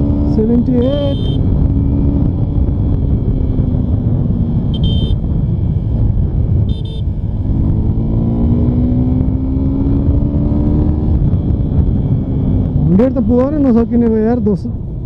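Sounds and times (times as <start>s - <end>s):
motorcycle engine accelerating: 0.0s - 15.0s
wind rumble on microphone: 0.0s - 15.0s
short horn beeps: 0.8s - 1.5s, 4.8s - 5.2s, 6.7s - 7.1s.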